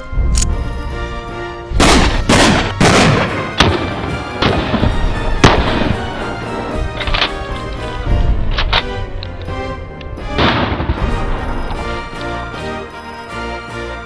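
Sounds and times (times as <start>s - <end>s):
background music: 0.0s - 14.0s
shotgun blasts: 1.8s - 6.5s, 10.4s - 11.4s.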